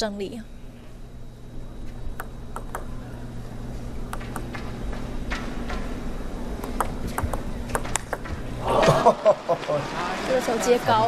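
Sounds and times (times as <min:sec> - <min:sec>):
low arena hum: 0:00.0 - 0:11.0
table tennis ball bouncing: 0:02.2 - 0:02.9, 0:04.1 - 0:04.7, 0:06.6 - 0:08.4.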